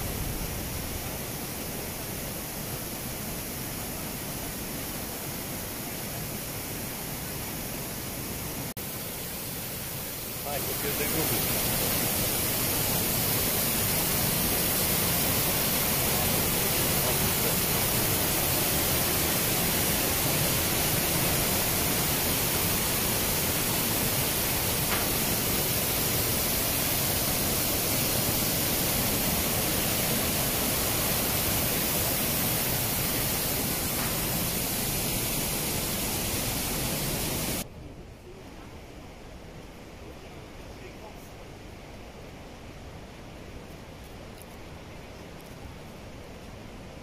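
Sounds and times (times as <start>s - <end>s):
waterfall rushing: 0.0s - 37.7s.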